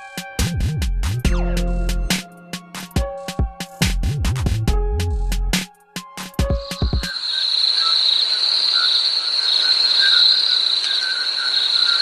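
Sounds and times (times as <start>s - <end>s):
music track: 0.0s - 7.1s
crickets chirping: 6.6s - 12.0s.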